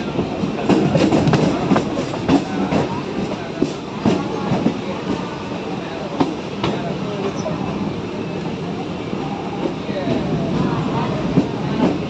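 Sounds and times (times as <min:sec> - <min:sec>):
train wheels clicking over rail joints: 0:00.0 - 0:05.4.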